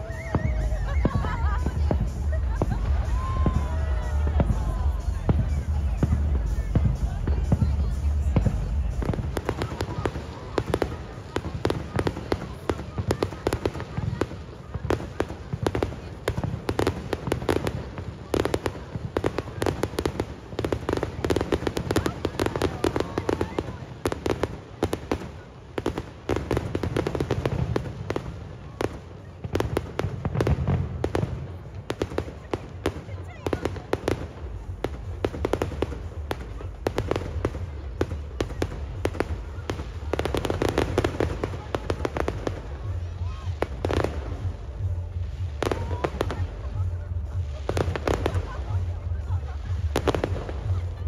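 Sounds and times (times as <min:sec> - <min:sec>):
fireworks bangs and crackles: 0:00.0 - 0:51.0
steady low rumble: 0:00.4 - 0:11.9, 0:34.0 - 0:51.0.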